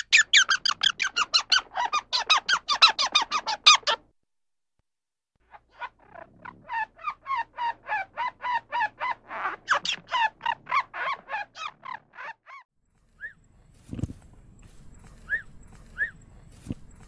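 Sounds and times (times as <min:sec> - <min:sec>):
squirrel barking calls: 0:00.0 - 0:04.0, 0:05.5 - 0:12.6, 0:15.2 - 0:16.3.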